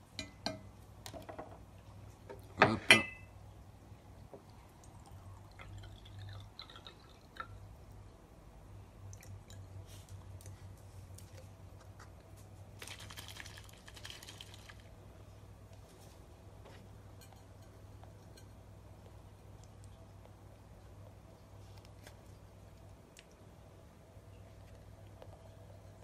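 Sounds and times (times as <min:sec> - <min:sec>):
steady low hum: 0:00.0 - 0:26.0
water dripping and trickling: 0:04.4 - 0:08.2.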